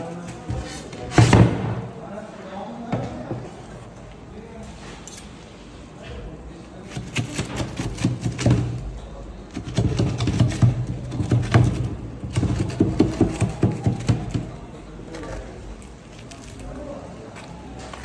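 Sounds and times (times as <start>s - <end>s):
knife sawing through bread crust: 6.8s - 8.5s.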